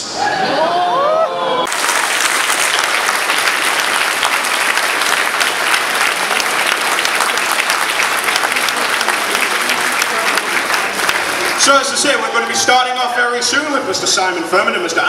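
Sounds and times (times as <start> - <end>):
audience applauding: 1.6 - 13.1.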